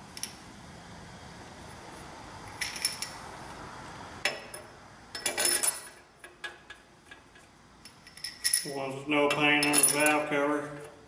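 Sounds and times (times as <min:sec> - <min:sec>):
metal bolts clinking: 0:02.6 - 0:03.2, 0:04.3 - 0:10.4.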